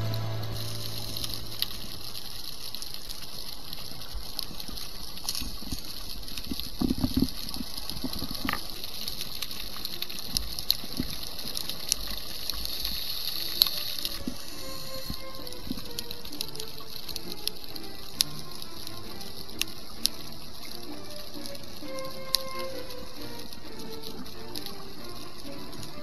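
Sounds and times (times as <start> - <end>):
sharp clicks and crackles: 1.2 - 14.4
underwater hiss: 11.2 - 15.3.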